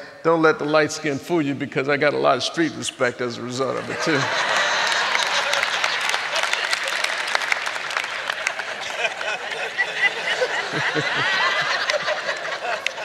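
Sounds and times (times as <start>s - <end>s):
audience laughing: 3.6s - 13.0s
audience clapping: 3.8s - 13.0s.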